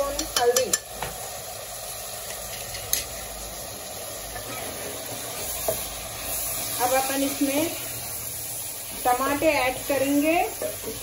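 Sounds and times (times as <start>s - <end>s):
onions and meat sizzling in oil: 0.0s - 11.0s
spoon clicking against pot: 0.1s - 0.9s.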